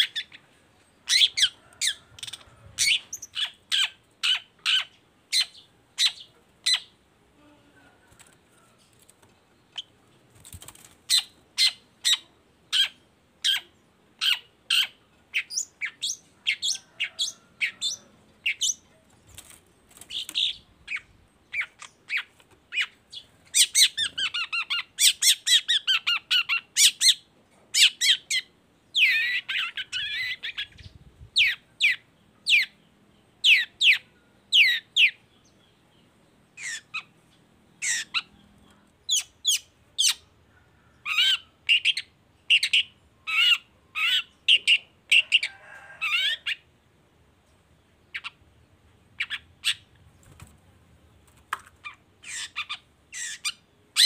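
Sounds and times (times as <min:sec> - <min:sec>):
bird rapid chattering: 0:51.5 - 0:54.0.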